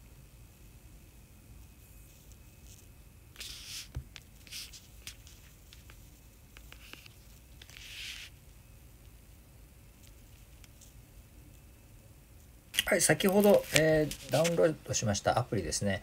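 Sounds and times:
handling rustles: 0:12.8 - 0:14.8.

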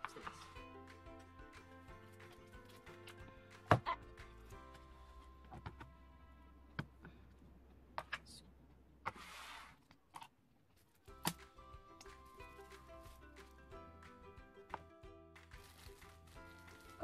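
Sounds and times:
plastic crinkle: 0:15.6 - 0:17.0.

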